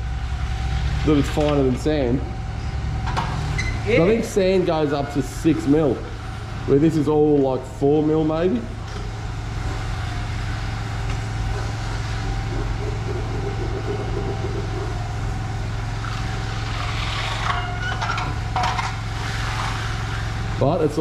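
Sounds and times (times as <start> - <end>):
heavy engine humming: 0.0 - 21.0
scratching and clattering: 16.1 - 19.9.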